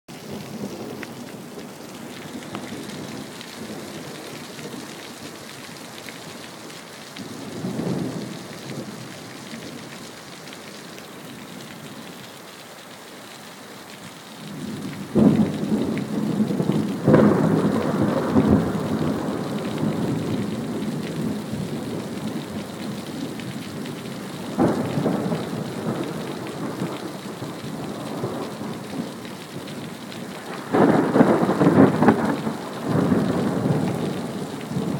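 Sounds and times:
steady rain: 0.1s - 34.9s
rolling thunder: 14.5s - 22.9s, 23.7s - 29.2s, 30.2s - 34.9s.

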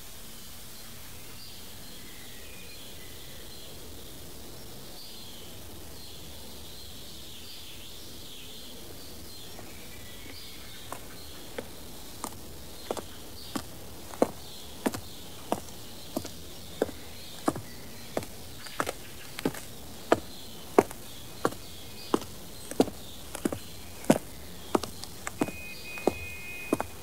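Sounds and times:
steady hiss: 0.0s - 27.0s
insects chirping: 0.2s - 27.0s
footsteps on a hard surface: 9.6s - 27.0s.

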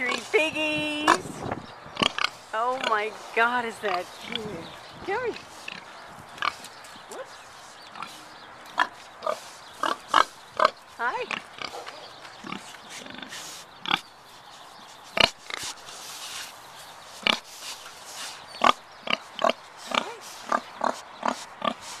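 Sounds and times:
pigs grunting: 2.0s - 3.1s, 5.3s - 14.1s, 18.6s - 22.0s.

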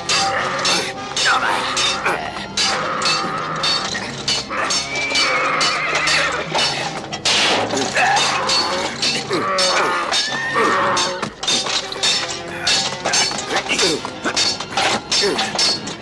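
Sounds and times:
background music: 0.0s - 16.0s
swords clashing: 0.0s - 16.0s
horse whinnying: 1.7s - 6.5s, 7.7s - 11.3s.

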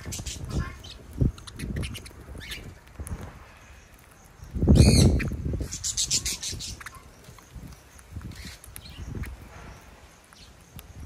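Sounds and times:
small parrots chirping and calling: 0.0s - 11.0s
high chattering: 4.6s - 7.6s.

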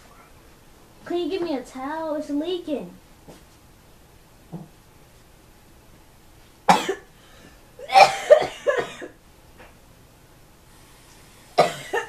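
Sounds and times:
person coughing hard: 6.7s - 7.1s, 7.8s - 9.2s, 11.6s - 12.0s.

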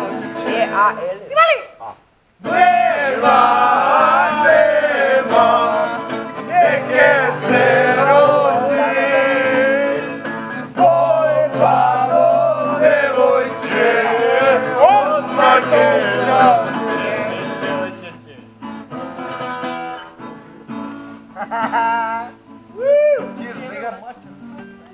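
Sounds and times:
guitar accompaniment: 0.0s - 24.9s
person singing: 2.4s - 18.0s.

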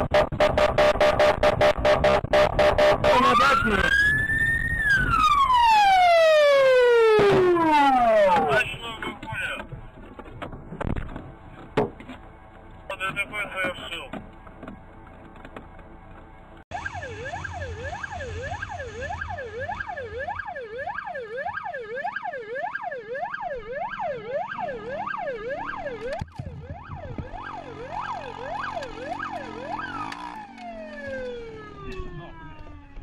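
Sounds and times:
police siren yelping: 0.6s - 9.6s, 16.7s - 33.0s.

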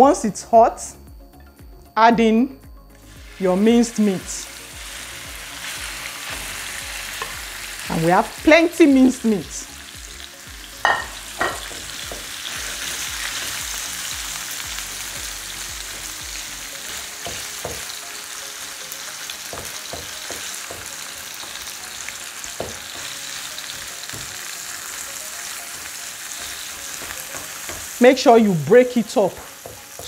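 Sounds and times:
meat sizzling in oil: 3.1s - 30.0s.

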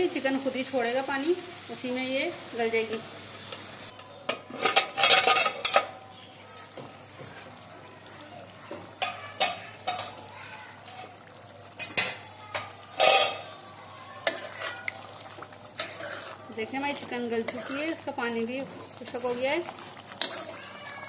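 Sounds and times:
curry sizzling and bubbling: 0.0s - 21.0s
pot lid clattering: 4.3s - 5.9s, 13.0s - 13.4s
metal spoon scraping pan: 4.3s - 6.0s, 11.8s - 13.5s, 14.2s - 15.0s, 15.7s - 20.7s.

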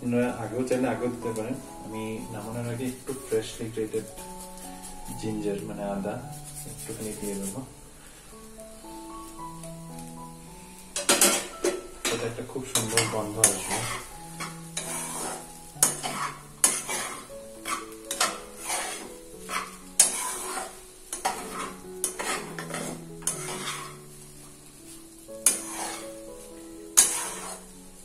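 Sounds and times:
light sizzle: 0.0s - 28.0s
soft background music: 0.0s - 28.0s
spatula scraping frying pan: 11.0s - 28.0s.

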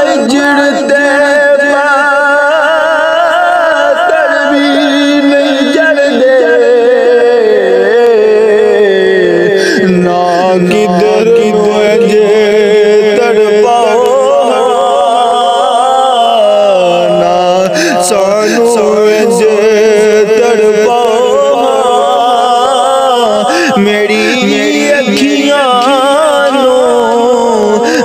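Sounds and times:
man singing ornamented notes: 0.0s - 28.0s.

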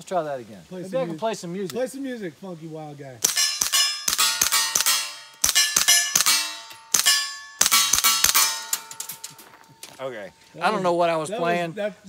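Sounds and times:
suppressed gunshots: 3.2s - 8.9s
steel plates ringing clang: 3.2s - 10.4s.

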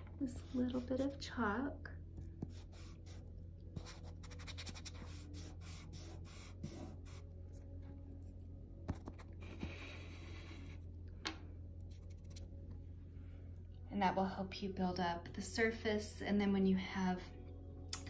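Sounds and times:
low steady hum: 0.0s - 18.0s
chalk pastel scratching on paper: 0.3s - 1.2s, 2.4s - 7.2s, 8.9s - 10.8s.

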